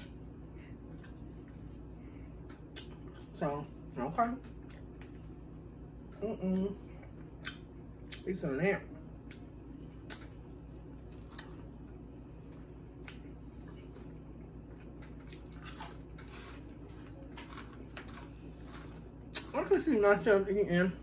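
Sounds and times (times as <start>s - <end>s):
faint low hum: 0.0s - 21.0s
chewing: 9.0s - 11.8s.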